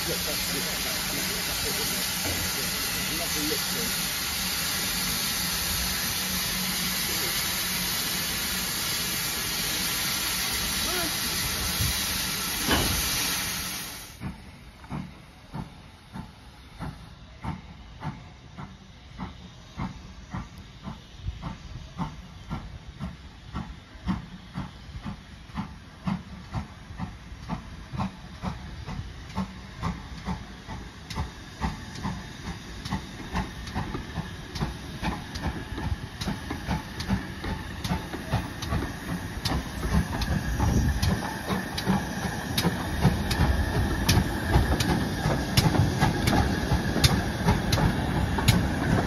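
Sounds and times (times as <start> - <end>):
steam hissing: 0.0 - 49.0
steam locomotive exhaust chuffs: 0.0 - 49.0.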